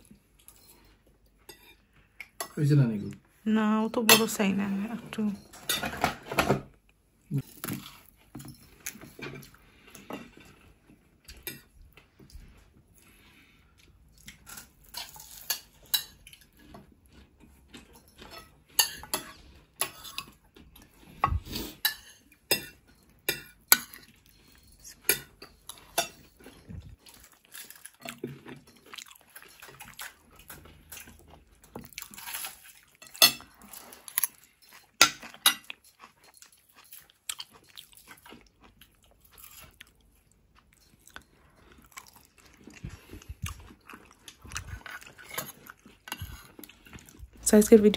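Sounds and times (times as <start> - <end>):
cutlery and plates clinking: 5.2 - 6.7, 14.3 - 16.9, 17.7 - 38.3.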